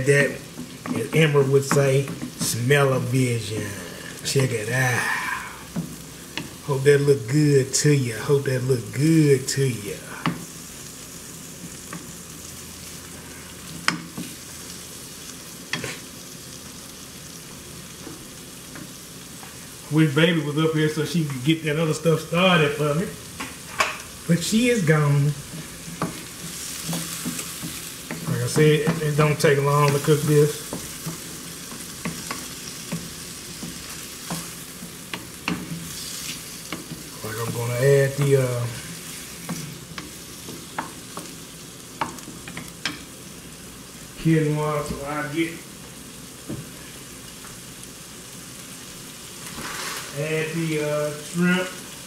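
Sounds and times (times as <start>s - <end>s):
wooden spoon stirring: 0.0s - 6.7s, 23.8s - 43.0s
shrimp sizzling in a skillet: 0.0s - 52.0s.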